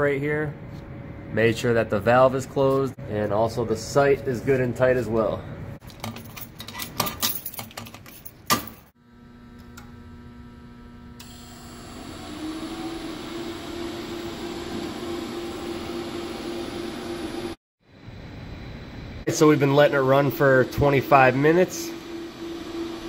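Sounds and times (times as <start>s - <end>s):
electrical hum with tones: 9.0s - 23.0s.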